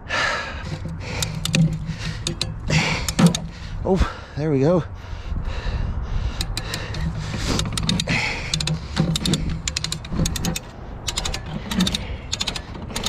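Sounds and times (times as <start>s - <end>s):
ratchet winch clicking: 0.6s - 3.7s, 6.4s - 13.0s.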